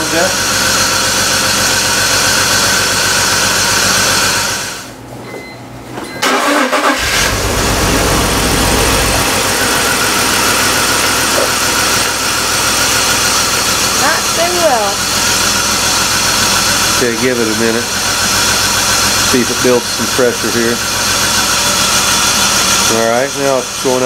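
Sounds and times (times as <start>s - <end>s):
car engine running: 0.0s - 4.9s, 6.2s - 24.0s
engine cranking and starting: 6.2s - 23.3s.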